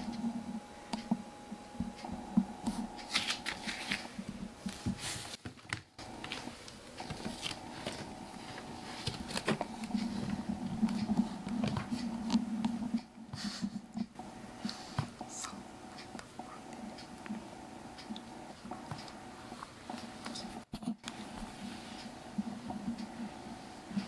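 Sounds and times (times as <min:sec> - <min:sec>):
faint steady hum: 0:00.0 - 0:24.0
rustling of bedding: 0:02.6 - 0:12.2.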